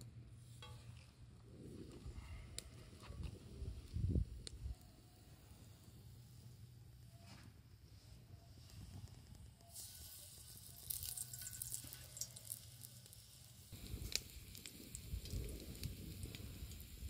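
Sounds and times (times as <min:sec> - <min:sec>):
hot oil sizzling in a pan: 0:09.7 - 0:17.0.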